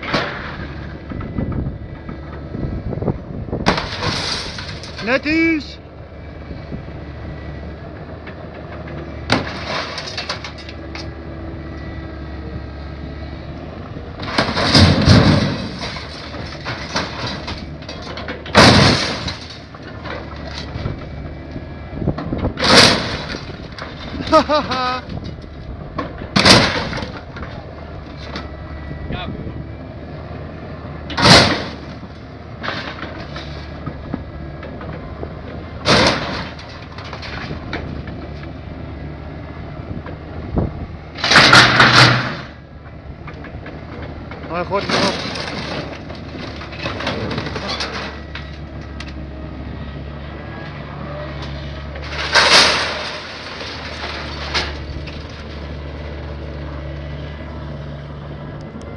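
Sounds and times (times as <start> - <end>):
excavator diesel engine running: 0.0 - 58.9
metal clank: 3.6 - 5.1, 14.2 - 20.8, 52.0 - 55.6
scrap metal crashing: 3.6 - 5.6, 9.3 - 10.7, 14.2 - 21.0, 22.6 - 28.4, 31.1 - 33.7, 35.8 - 38.0, 41.2 - 42.6, 44.5 - 48.6, 51.4 - 56.2.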